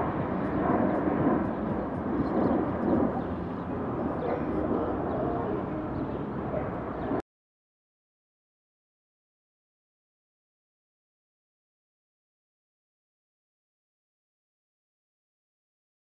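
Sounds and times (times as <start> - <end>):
dense park background rumble: 0.0 - 7.2.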